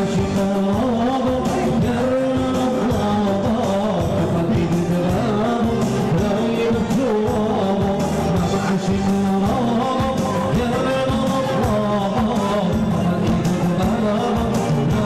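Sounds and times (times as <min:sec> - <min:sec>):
man singing through microphone: 0:00.0 - 0:15.0
sustained melodic backing: 0:00.0 - 0:15.0
steady dance beat: 0:04.0 - 0:14.9.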